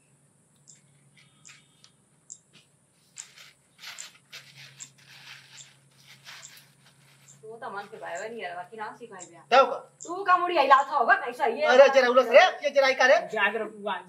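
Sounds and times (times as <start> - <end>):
low steady hum: 0.0 - 14.0
short rustles: 2.5 - 8.2.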